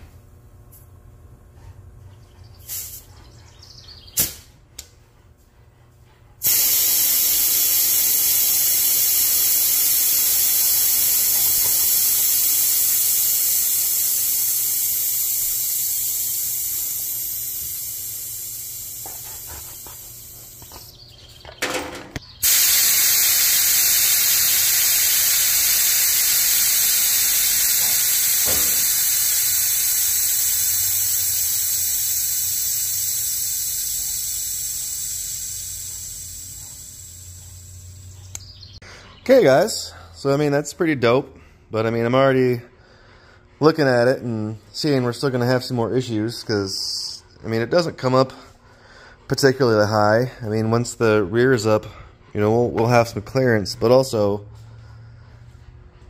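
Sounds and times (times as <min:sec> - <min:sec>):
compressed air hissing: 0:02.6 - 0:03.1, 0:06.4 - 0:21.0, 0:22.4 - 0:38.4.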